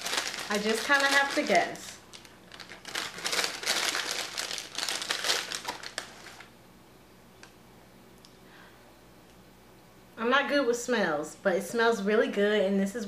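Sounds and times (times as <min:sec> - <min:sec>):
wrapper crinkling: 0:00.0 - 0:06.5.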